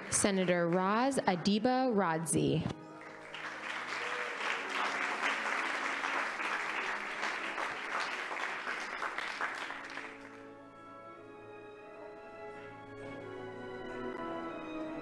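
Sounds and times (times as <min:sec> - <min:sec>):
audience applauding: 0:00.0 - 0:01.2, 0:02.9 - 0:10.5
soft music: 0:00.0 - 0:15.0.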